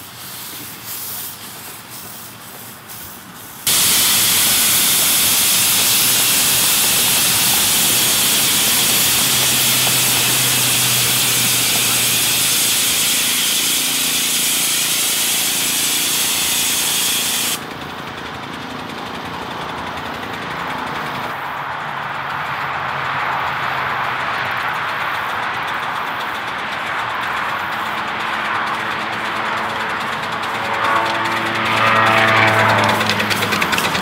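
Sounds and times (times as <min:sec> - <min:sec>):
steam hissing: 0:00.0 - 0:17.7, 0:24.6 - 0:34.0
small steam locomotive running: 0:00.0 - 0:34.0.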